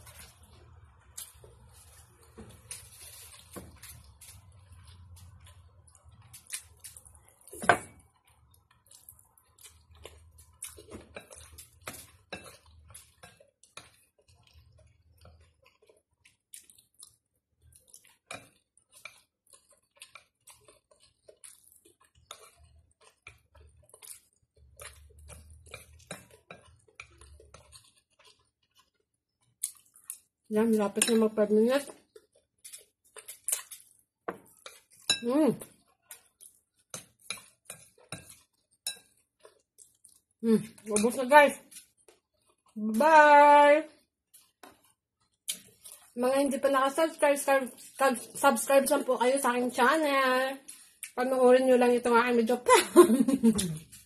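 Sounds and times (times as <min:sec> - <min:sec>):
chewing: 0:00.0 - 0:30.5, 0:31.9 - 0:41.0, 0:41.6 - 0:42.8, 0:44.2 - 0:46.2.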